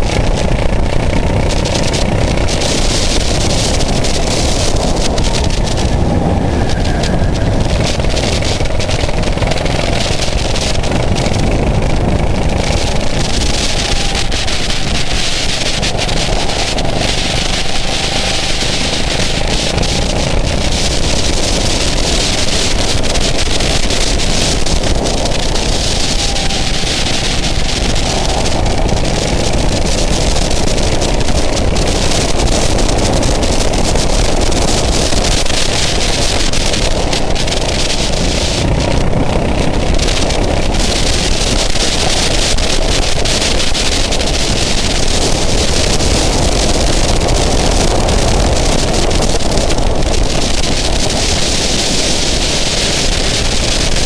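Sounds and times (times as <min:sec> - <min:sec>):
go-kart engine running: 0:00.0 - 0:54.0
wind noise on microphone: 0:00.0 - 0:54.0.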